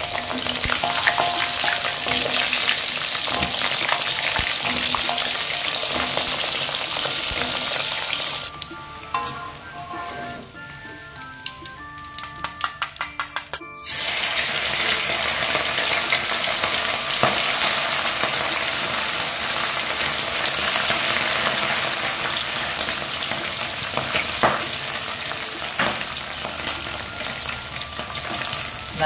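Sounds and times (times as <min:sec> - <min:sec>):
fish sizzling in hot oil: 0:00.0 - 0:13.0, 0:13.8 - 0:29.0
music: 0:00.0 - 0:29.0.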